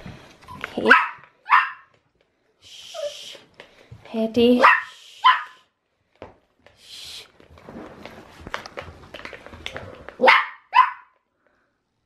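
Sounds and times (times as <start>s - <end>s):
puppy barking: 0.9s - 1.9s, 4.6s - 5.6s, 10.2s - 11.2s.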